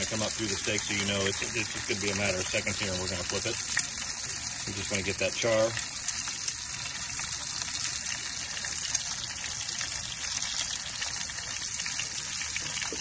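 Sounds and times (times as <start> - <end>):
fish sizzling in oil: 0.0 - 13.0.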